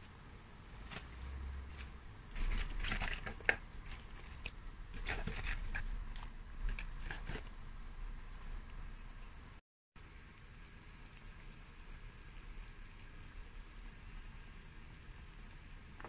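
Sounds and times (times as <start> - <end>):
greens rustling in boiling water: 0.0 - 16.0.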